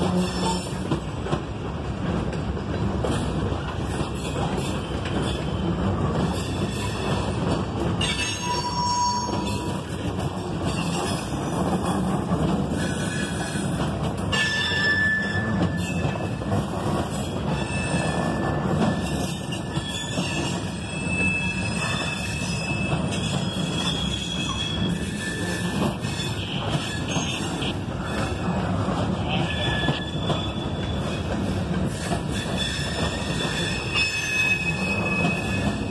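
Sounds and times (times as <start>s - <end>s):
train wheels rumbling on rail: 0.0s - 35.9s
high wheel squeals: 14.3s - 16.3s, 17.2s - 28.5s, 29.4s - 31.3s, 31.9s - 35.9s.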